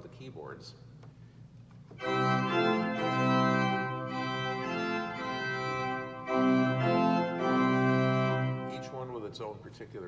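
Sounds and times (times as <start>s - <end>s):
pipe organ chords: 1.9s - 9.4s.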